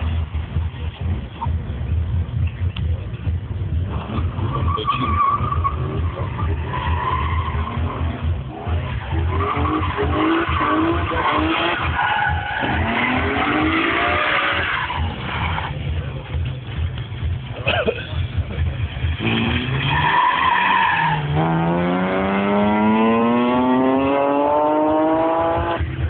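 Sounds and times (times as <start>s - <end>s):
tyres squealing on tarmac: 4.3s - 15.9s, 19.6s - 21.4s
car engine revving hard: 7.5s - 14.8s, 19.0s - 26.0s.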